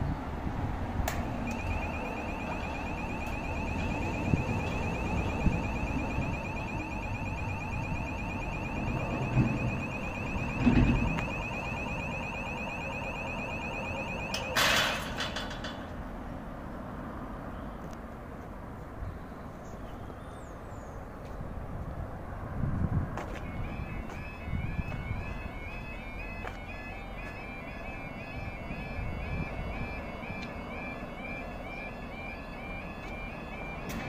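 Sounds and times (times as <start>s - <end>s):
rapidly pulsing electronic alarm: 1.3s - 15.2s, 23.4s - 34.0s
metal gate clanging shut: 14.3s - 16.0s.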